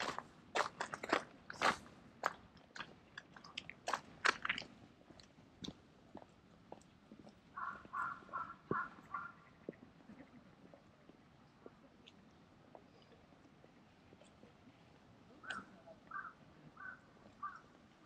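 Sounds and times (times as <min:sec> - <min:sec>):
footsteps crunching on gravel: 0:00.0 - 0:06.8.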